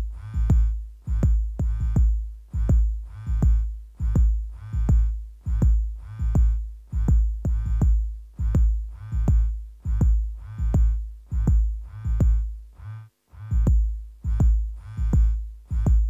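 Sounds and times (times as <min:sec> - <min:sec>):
deep bass thump: 0:00.0 - 0:12.5, 0:13.5 - 0:16.0.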